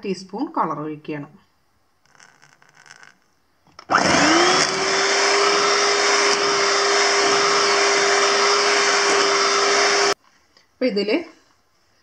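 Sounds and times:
electric hand mixer whining: 3.9 - 10.2.

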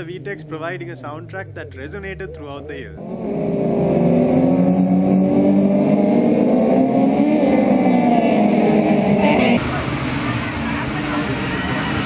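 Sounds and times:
race car engines revving: 0.0 - 12.0.

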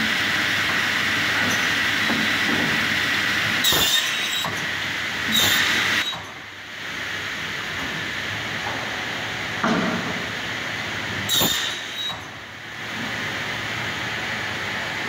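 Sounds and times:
saw cutting through boards: 3.6 - 4.6, 5.3 - 6.1, 11.3 - 12.1.

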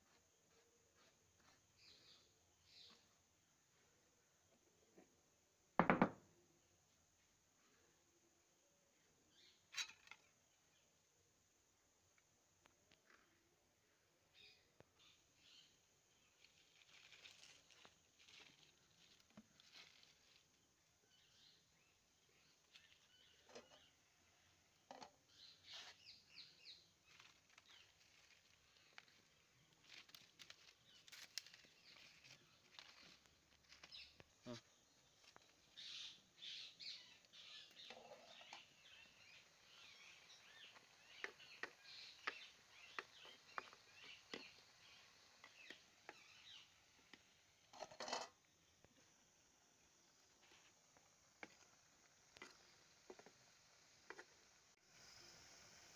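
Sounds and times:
faint bird chirps: 0.0 - 5.1, 6.4 - 11.9, 12.9 - 55.9
small knocks: 5.8 - 6.2.

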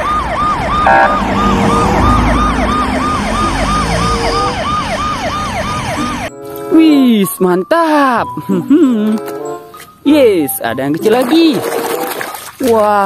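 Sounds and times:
ambulance siren yelp: 0.0 - 6.3
engine and traffic rumble: 0.0 - 6.8
short steady tone: 0.8 - 2.4.

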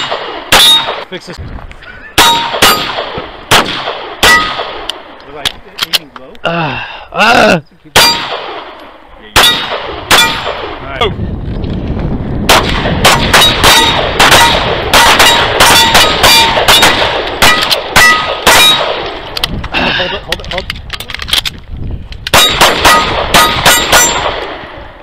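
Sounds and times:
pistol shots: 0.0 - 1.1, 2.2 - 5.2, 8.0 - 8.8, 9.4 - 10.8, 12.5 - 19.2, 22.3 - 24.7
steel plates ringing: 0.6 - 0.9, 2.2 - 2.9, 13.4 - 18.8, 22.4 - 24.3.

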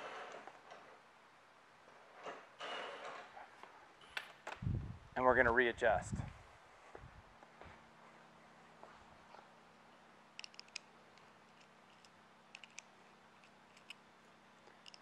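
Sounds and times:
strap hardware clicking: 10.4 - 14.0, 14.7 - 15.0.

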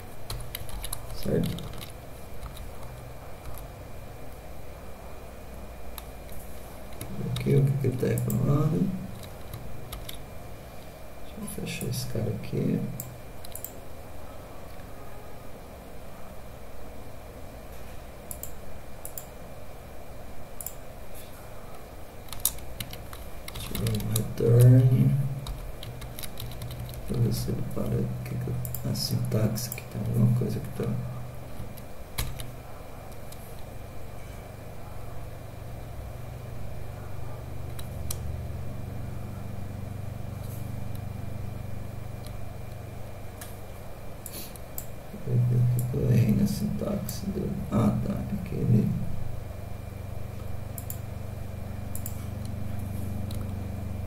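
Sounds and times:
low room hum: 0.0 - 54.0
computer keys clicking: 0.3 - 3.7, 6.9 - 10.2, 12.9 - 13.8, 18.3 - 19.3, 22.2 - 27.2, 28.6 - 30.2, 31.6 - 33.7, 50.7 - 51.1, 51.9 - 52.6
keystroke clicks: 0.3 - 3.7, 13.0 - 13.8, 22.3 - 24.7, 25.4 - 27.2.

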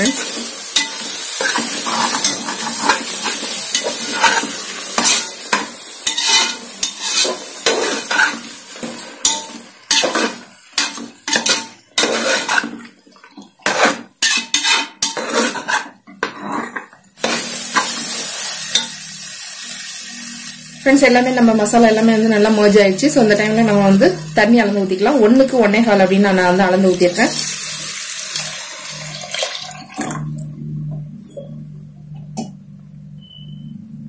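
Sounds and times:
spatula scraping a metal pot: 0.0 - 5.3, 6.0 - 8.5, 9.2 - 12.9, 13.6 - 17.0
food sizzling: 0.0 - 30.5.

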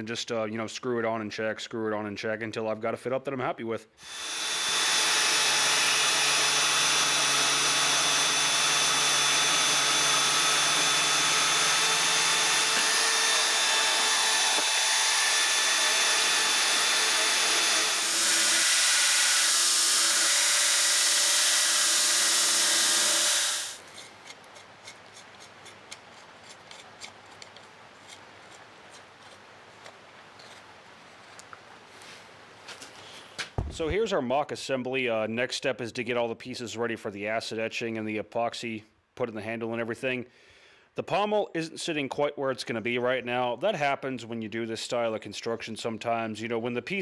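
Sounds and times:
band saw cutting: 4.0 - 28.6
belt grinder grinding metal: 4.0 - 29.4.

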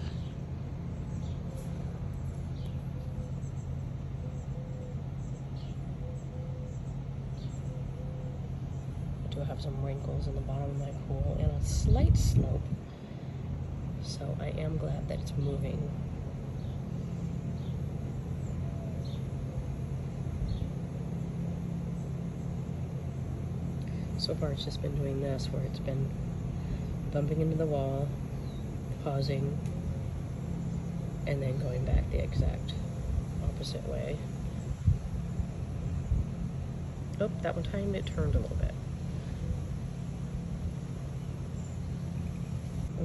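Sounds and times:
small birds chirping: 0.0 - 43.0
steady low hum: 0.0 - 43.0.

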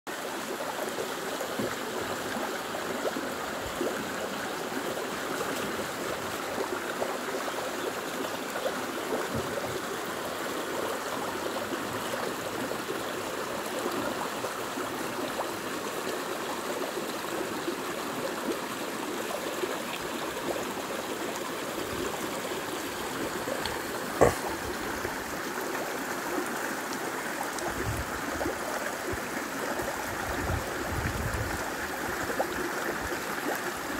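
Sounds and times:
stream rushing over stones: 0.1 - 33.9.

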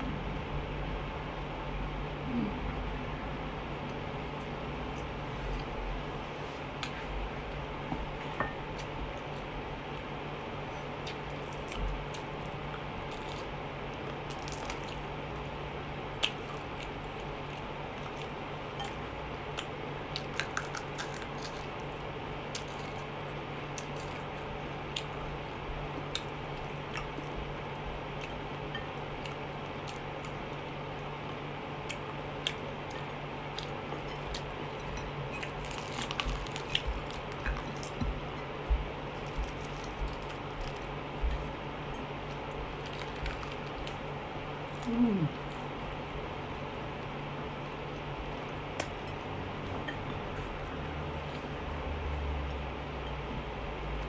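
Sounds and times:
low steady hum: 0.0 - 54.0
person chewing and lip smacking: 31.2 - 38.2.

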